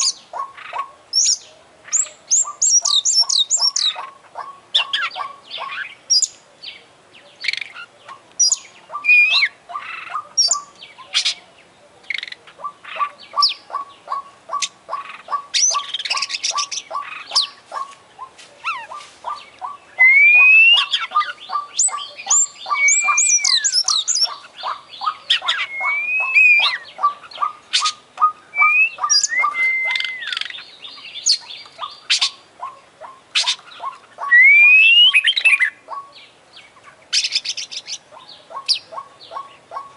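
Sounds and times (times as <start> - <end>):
bird singing: 0.0 - 39.9.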